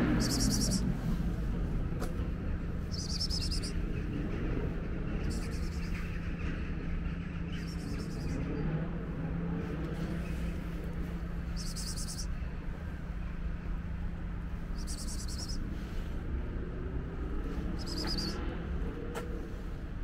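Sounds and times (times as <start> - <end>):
low street hum: 0.0 - 20.0
insect buzzing chirps: 0.2 - 0.8, 2.9 - 3.8, 11.6 - 12.3, 14.8 - 15.6, 17.8 - 18.4.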